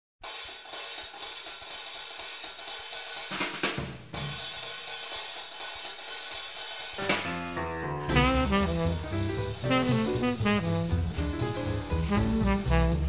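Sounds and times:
jazz drum kit swing rhythm: 0:00.2 - 0:13.0
band accent: 0:07.0 - 0:13.0.

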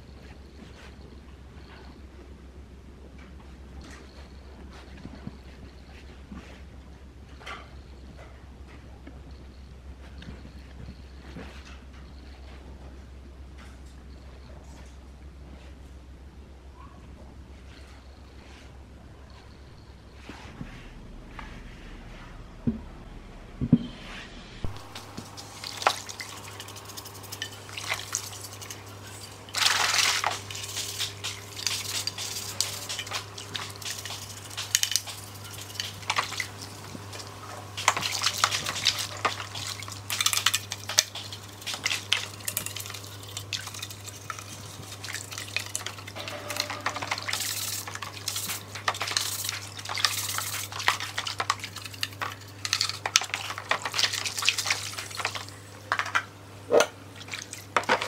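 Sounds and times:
brush scrubbing: 0:24.0 - 0:55.5
water sloshing and splashing: 0:24.6 - 0:58.0.

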